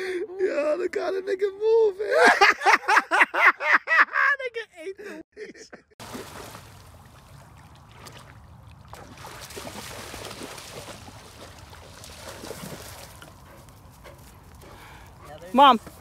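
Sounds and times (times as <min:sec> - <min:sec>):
water sloshing and splashing: 0:06.0 - 0:13.5.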